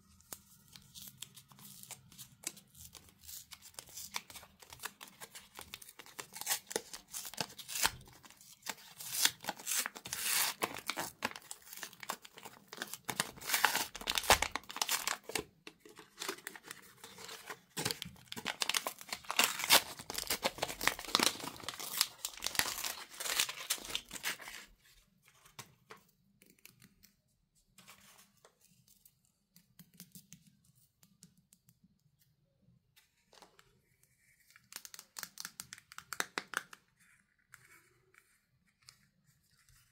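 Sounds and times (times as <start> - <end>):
foil wrapper crinkling and tearing: 2.9 - 24.8
faint handling sounds: 23.9 - 32.3.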